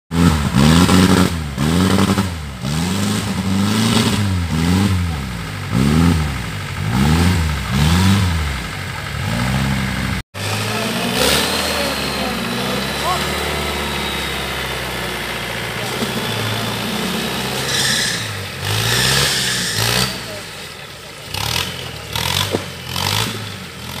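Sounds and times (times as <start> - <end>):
buggy engine revving: 0.1 - 24.0.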